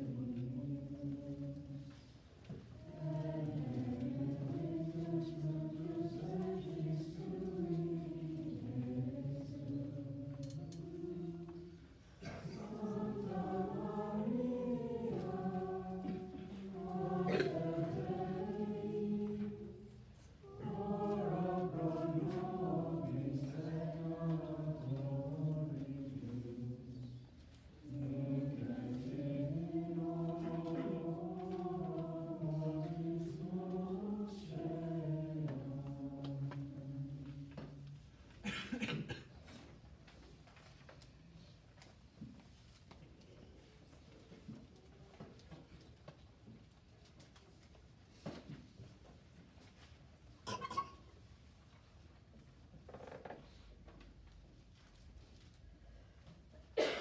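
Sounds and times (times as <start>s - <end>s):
choir singing chant: 0.0s - 2.1s, 2.8s - 37.9s.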